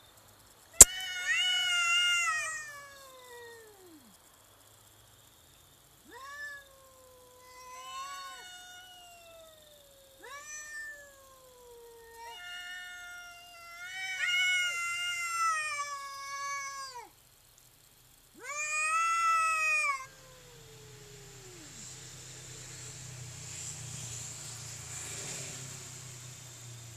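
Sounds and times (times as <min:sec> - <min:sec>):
cats yowling: 0:00.8 - 0:04.2, 0:06.0 - 0:17.2, 0:18.3 - 0:23.2.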